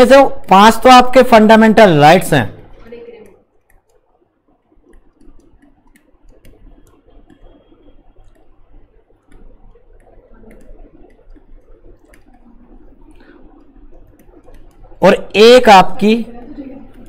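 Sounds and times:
stylus tapping on tablet: 3.6 - 12.4
low hum: 3.6 - 15.4.

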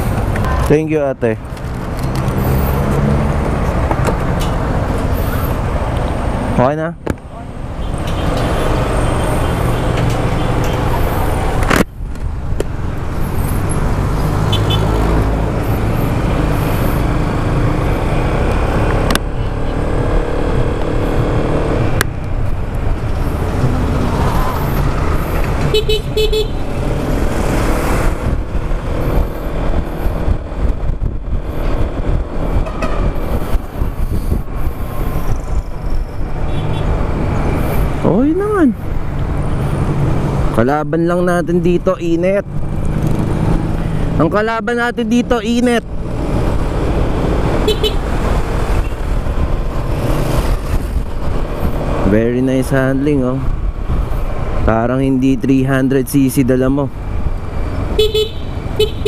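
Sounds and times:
scooter engine and road noise: 0.0 - 59.0
vehicle horn toots: 25.7 - 26.6, 47.7 - 48.0, 58.0 - 59.0.

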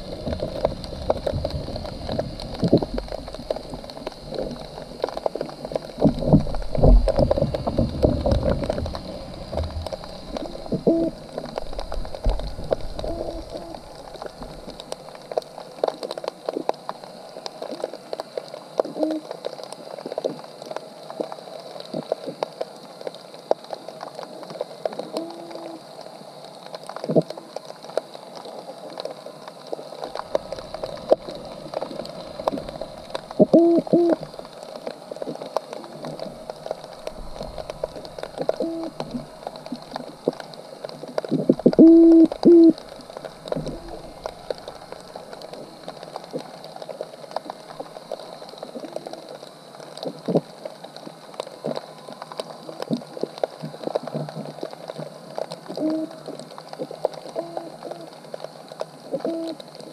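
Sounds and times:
underwater crackle of clicks: 0.0 - 59.9
low hooting calls: 38.5 - 39.2.

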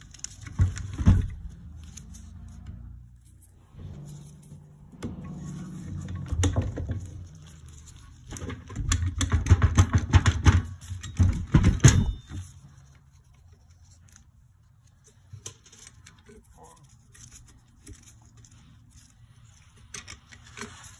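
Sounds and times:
metallic knocking and rattling: 4.8 - 12.6.

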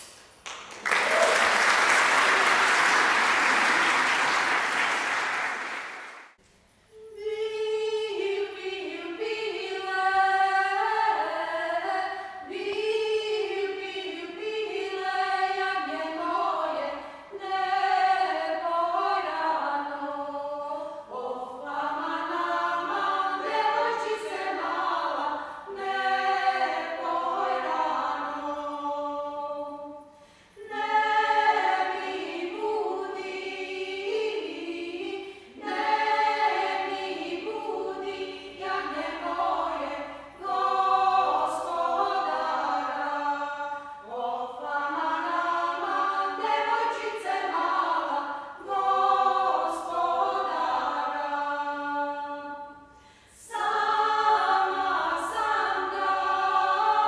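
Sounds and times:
women singing in harmony: 6.9 - 57.0.

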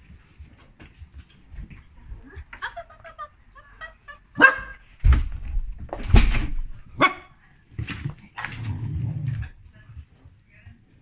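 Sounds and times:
dogs barking: 4.4 - 4.8.

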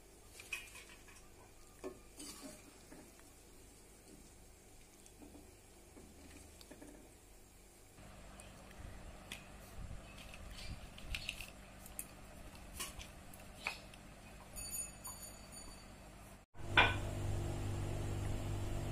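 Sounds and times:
crisp snacks crackling: 8.4 - 14.0
steady low hum: 16.6 - 18.9.

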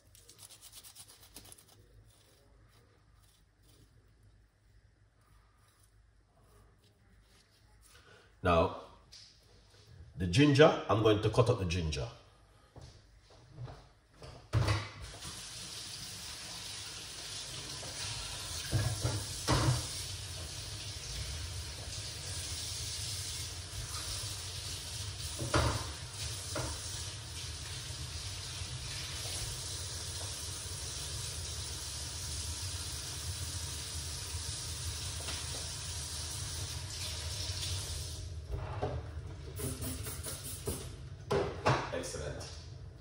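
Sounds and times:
tap running into sink: 17.8 - 20.6, 25.2 - 27.0.

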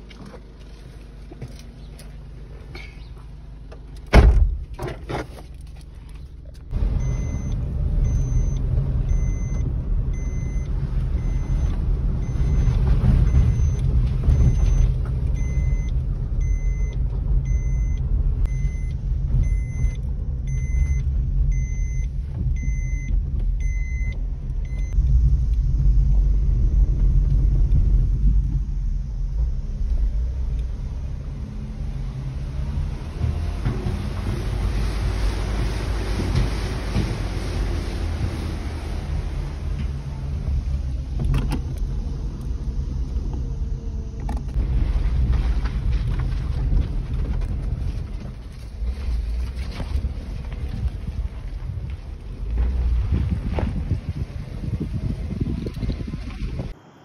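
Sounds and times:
car engine and tyre rumble: 0.0 - 57.0
electronic warning beep: 7.0 - 25.0.

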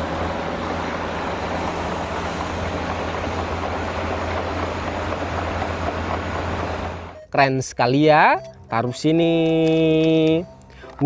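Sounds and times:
sand rushing out: 0.0 - 7.1
truck engine hum: 0.0 - 7.4.

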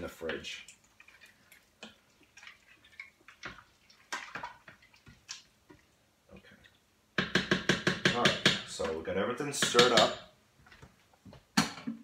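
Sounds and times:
wet sloshing: 0.7 - 6.8.

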